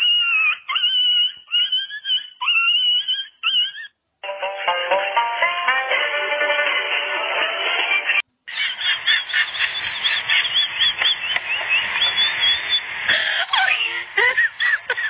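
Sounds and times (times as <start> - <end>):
kitten and puppy squeaking: 0.0 - 4.0.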